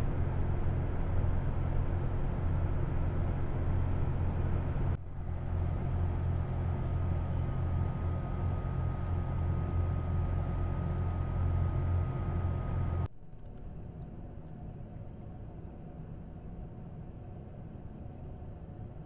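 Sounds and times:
low rumble and hiss: 0:00.0 - 0:19.0.

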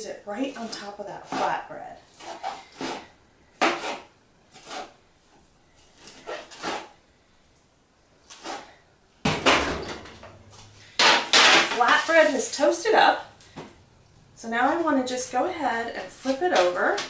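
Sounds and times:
knife chopping on cutting board: 0:03.6 - 0:04.9.

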